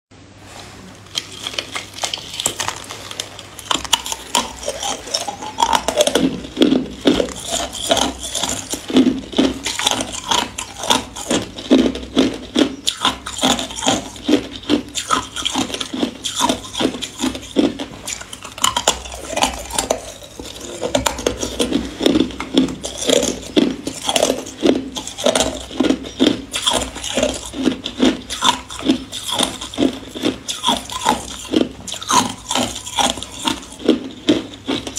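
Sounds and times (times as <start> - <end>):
ice crunching in mouth: 1.1 - 34.9.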